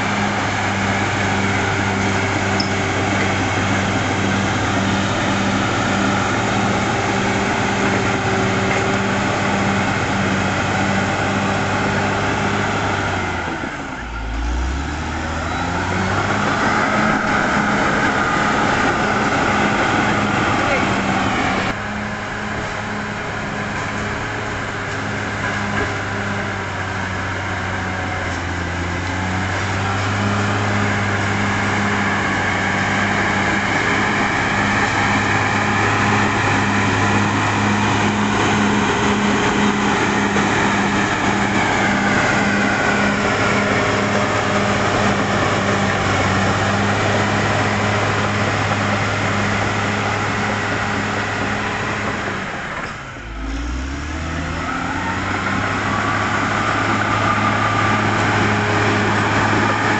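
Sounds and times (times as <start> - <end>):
bulldozer diesel engine under load: 0.0 - 59.9.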